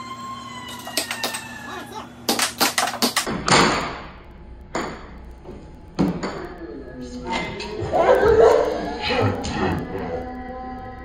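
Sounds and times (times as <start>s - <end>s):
air hockey puck and mallets clacking: 2.3s - 4.1s, 4.7s - 5.2s, 6.0s - 6.5s.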